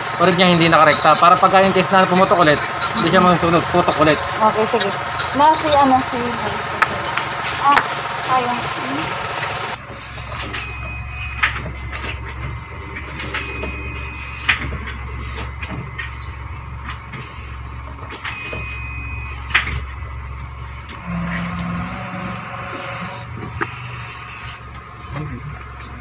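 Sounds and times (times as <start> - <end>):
low engine hum: 0.0 - 26.0
short high whine: 18.2 - 25.5.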